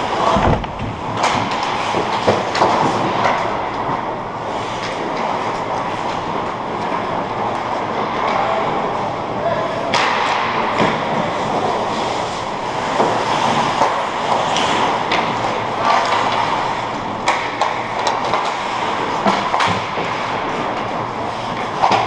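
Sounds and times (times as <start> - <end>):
hockey sticks and puck clacking: 0.0 - 9.0, 9.8 - 22.0
skate blades scraping ice: 11.1 - 22.0.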